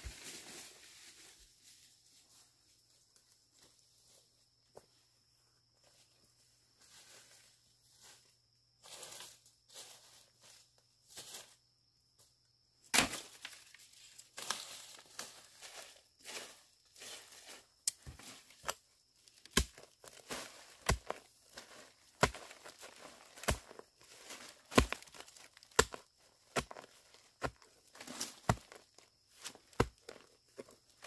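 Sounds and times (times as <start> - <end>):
footsteps crunching through dry leaves: 0.0 - 2.4, 6.8 - 11.6, 13.2 - 18.7, 19.8 - 30.1
hoe chopping soil: 12.9 - 13.5, 19.4 - 30.7.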